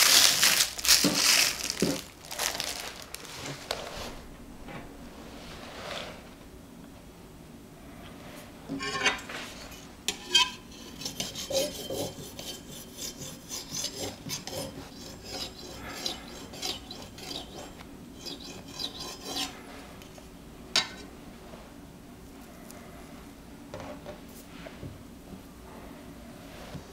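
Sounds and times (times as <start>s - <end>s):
bread knife sawing through cake: 10.8s - 19.6s.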